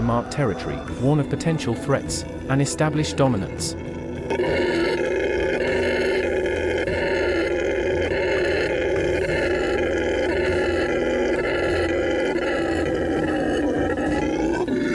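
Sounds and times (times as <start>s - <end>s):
howler monkey roaring: 3.8s - 14.9s.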